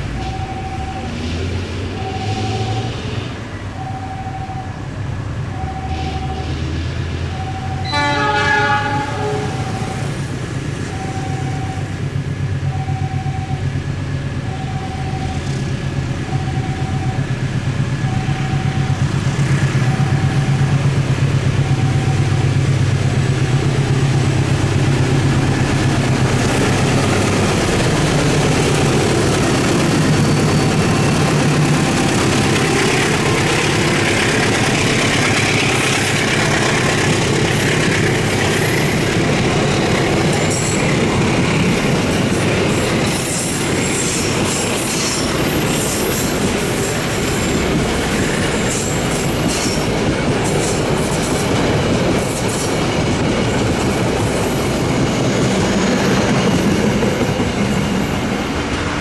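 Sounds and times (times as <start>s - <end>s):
locomotive engine drone: 0.0s - 59.0s
train wheels rolling on rails: 0.0s - 59.0s
short beeps: 18.0s - 19.0s.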